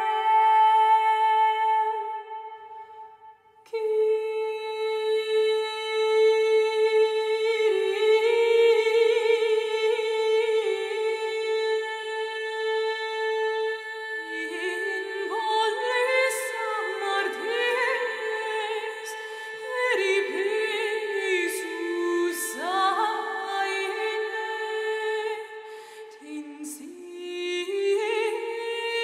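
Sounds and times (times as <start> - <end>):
women singing chant over drone: 3.7 - 29.0.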